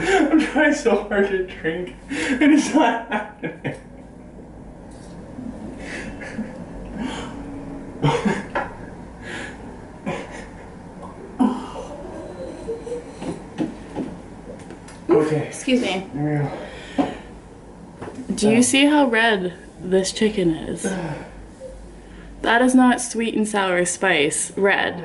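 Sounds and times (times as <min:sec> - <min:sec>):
low steady hum: 0:00.0 - 0:25.0
people chuckling: 0:02.2 - 0:04.2, 0:05.8 - 0:06.7, 0:11.4 - 0:13.6
gasping breaths: 0:06.9 - 0:07.5
people coughing: 0:08.0 - 0:08.6.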